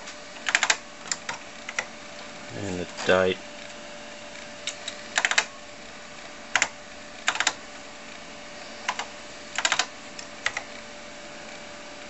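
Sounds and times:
computer keyboard keys clicking: 0:00.4 - 0:01.9, 0:04.6 - 0:05.5, 0:06.5 - 0:07.6, 0:08.9 - 0:10.7.

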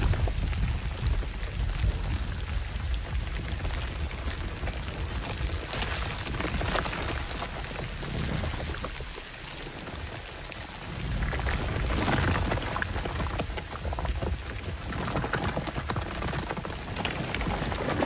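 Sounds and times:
deep rumble: 0:00.0 - 0:09.1
sharp crackles: 0:00.0 - 0:18.0.

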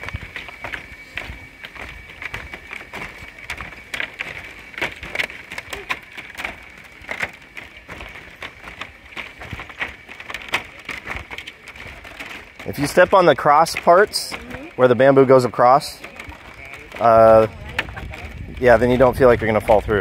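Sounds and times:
high-pitched drone: 0:00.0 - 0:08.8
footsteps on bamboo slats: 0:00.0 - 0:20.0.

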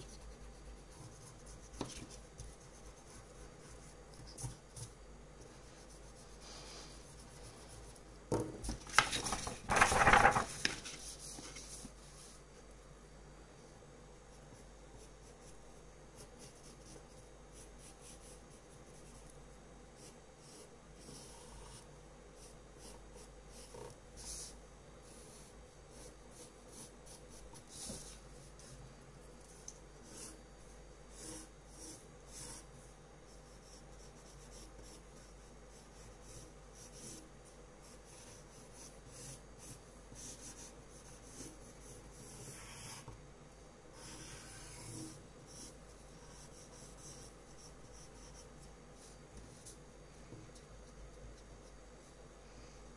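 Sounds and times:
pencil scratching on paper: 0:00.0 - 0:08.0, 0:16.1 - 0:19.3, 0:20.0 - 0:28.8, 0:29.5 - 0:30.5, 0:31.1 - 0:43.2, 0:44.0 - 0:49.8.

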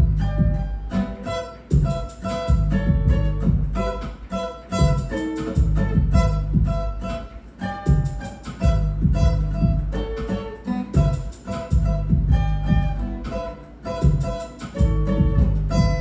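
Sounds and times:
deep steady bass line: 0:00.0 - 0:00.9, 0:01.7 - 0:04.2, 0:04.8 - 0:07.0, 0:07.9 - 0:10.3, 0:11.0 - 0:13.3, 0:14.0 - 0:16.0
acoustic guitar picking: 0:00.0 - 0:16.0
backing beat: 0:00.0 - 0:16.0.

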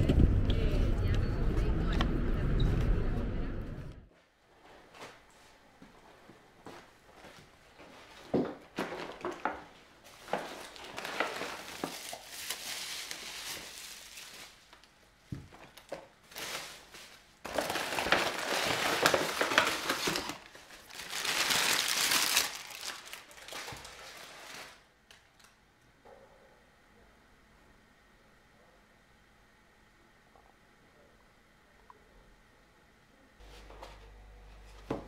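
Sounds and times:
paper bag crinkling: 0:08.8 - 0:14.9, 0:15.6 - 0:25.5.

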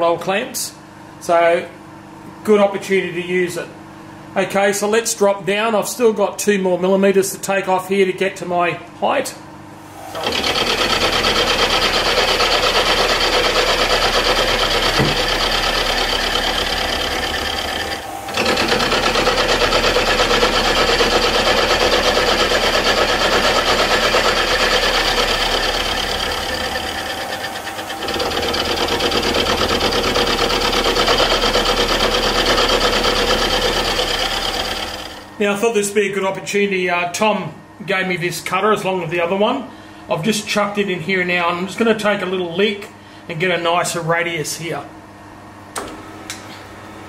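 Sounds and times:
machine spindle running: 0:09.9 - 0:35.4
end mill chattering on metal: 0:10.2 - 0:35.2.

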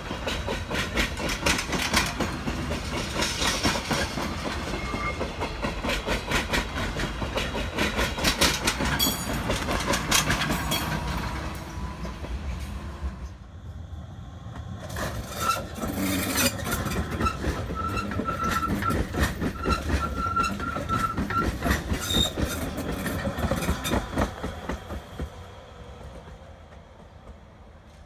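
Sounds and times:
train wheels clattering over rail joints: 0:00.0 - 0:12.8, 0:14.5 - 0:25.4
electric train passing: 0:00.0 - 0:28.0
thin high wheel squeal: 0:04.5 - 0:05.4, 0:15.2 - 0:22.8.

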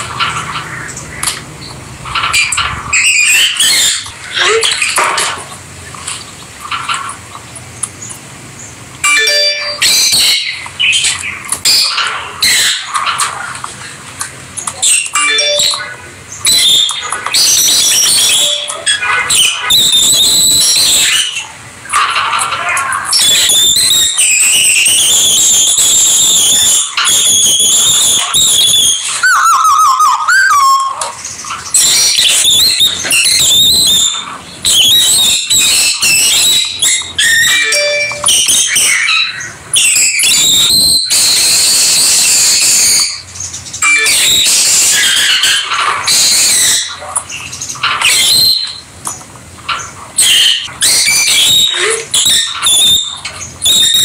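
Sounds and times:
lovebirds chattering and screeching: 0:00.0 - 0:54.0
low warbling bird call: 0:09.0 - 0:13.5, 0:14.8 - 0:21.6, 0:22.5 - 0:47.1.

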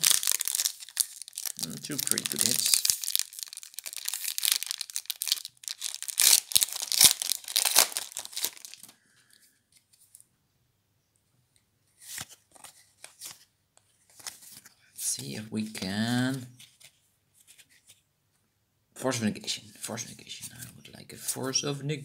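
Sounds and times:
foil rustle: 0:00.0 - 0:08.9
foil wrapper tearing and crinkling: 0:00.0 - 0:08.9.

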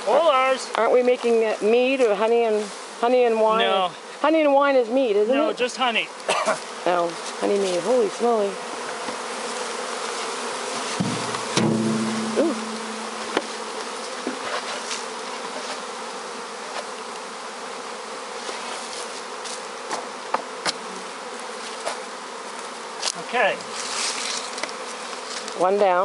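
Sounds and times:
honeybees buzzing: 0:00.0 - 0:26.0
knocks on wooden boxes: 0:11.0 - 0:13.6.

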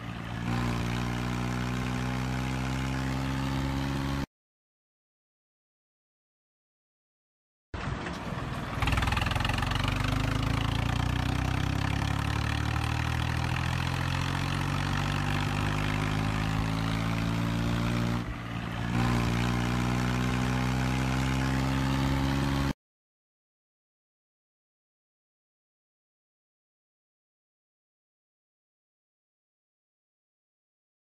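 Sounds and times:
tractor diesel engine running: 0:00.0 - 0:03.8, 0:07.8 - 0:22.3.

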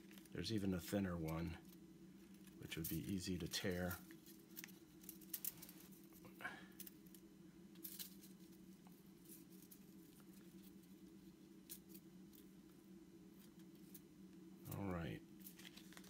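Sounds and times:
steady low hum: 0:00.0 - 0:16.0
plastic packet rustling: 0:15.4 - 0:16.0.

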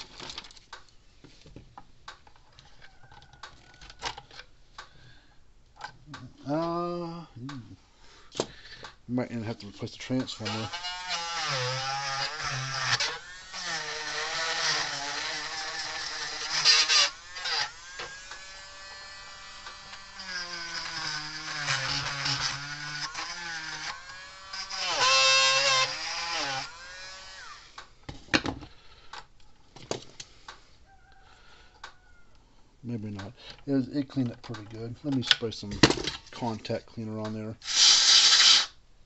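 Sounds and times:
rotary tool motor whine: 0:10.4 - 0:27.8.

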